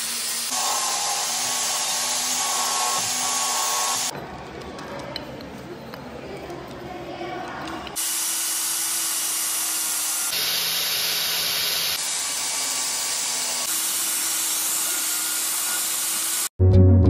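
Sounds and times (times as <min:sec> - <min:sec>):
angle grinder on steel: 0:00.0 - 0:04.1, 0:08.0 - 0:16.5.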